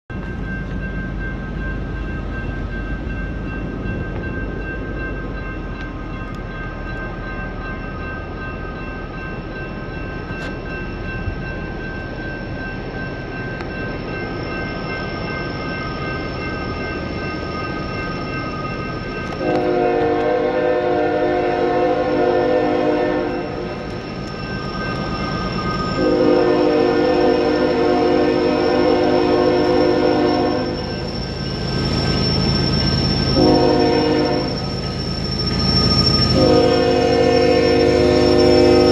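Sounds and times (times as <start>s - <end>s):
crossing signal bell ringing: 0.1s - 38.9s
locomotive air horn: 19.4s - 23.6s, 26.0s - 30.8s, 33.4s - 34.6s, 36.3s - 38.9s.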